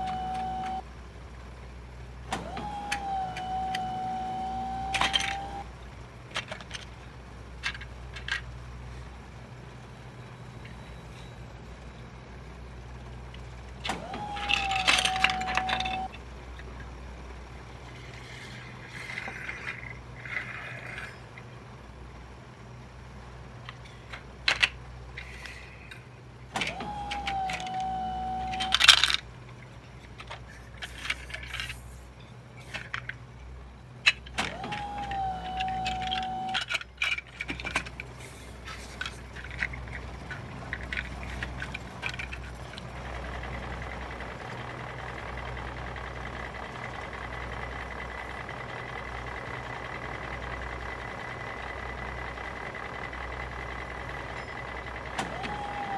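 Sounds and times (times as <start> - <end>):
held tone: 0.0 - 0.9, 2.4 - 5.7, 14.0 - 16.2, 26.6 - 28.9, 34.5 - 36.7
plastic bricks clicking: 6.3 - 8.5, 14.3 - 16.7, 23.6 - 26.0, 26.6 - 32.0, 32.6 - 33.2, 34.0 - 42.9.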